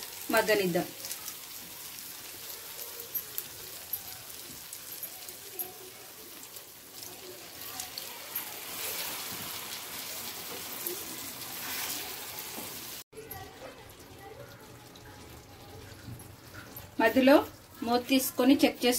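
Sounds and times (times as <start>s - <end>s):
food sizzling in oiled pan: 0.0s - 18.9s
wooden spatula stirring: 2.5s - 13.8s.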